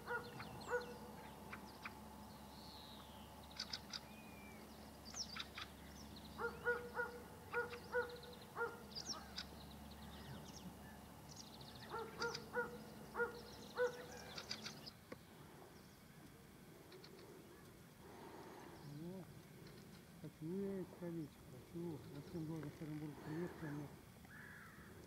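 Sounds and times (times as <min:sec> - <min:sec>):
birds honking calls: 0:00.0 - 0:15.0
small birds chirping: 0:00.0 - 0:25.0.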